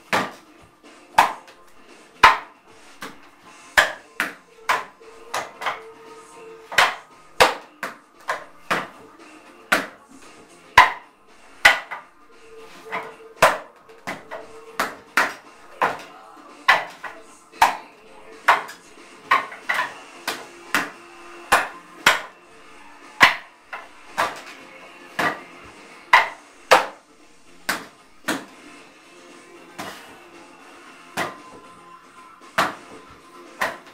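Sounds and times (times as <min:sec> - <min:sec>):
strikes on wooden dummy: 0:00.1 - 0:00.4.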